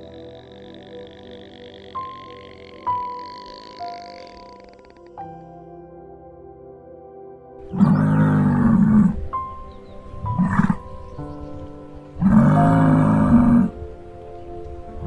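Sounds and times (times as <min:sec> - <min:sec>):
musk oxen low calls: 0:00.0 - 0:05.2, 0:07.6 - 0:09.3, 0:10.1 - 0:13.8
soft background music: 0:00.0 - 0:15.0.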